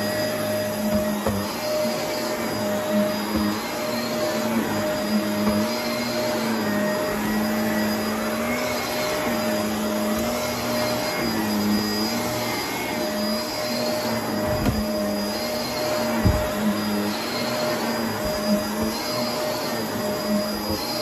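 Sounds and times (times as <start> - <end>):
vacuum cleaner motor whine: 0.0 - 21.0.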